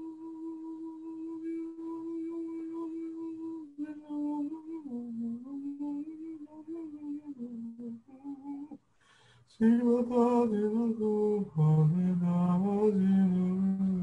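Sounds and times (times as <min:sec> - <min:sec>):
man singing wordless chant: 0:00.0 - 0:08.8, 0:09.5 - 0:14.0.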